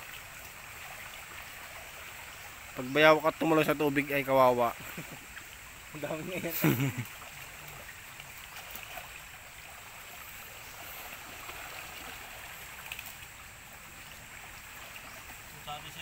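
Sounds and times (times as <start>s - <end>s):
creek water flowing: 0.0s - 16.0s.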